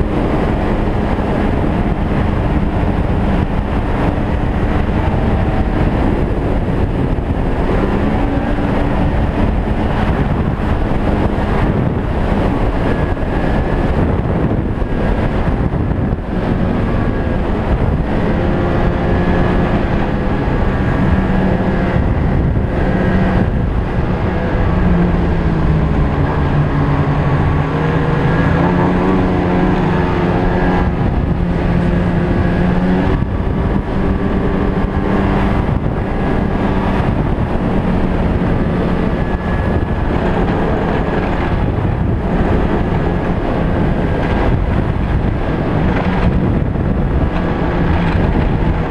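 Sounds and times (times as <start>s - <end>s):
snowmobile engine running: 0.0s - 48.9s.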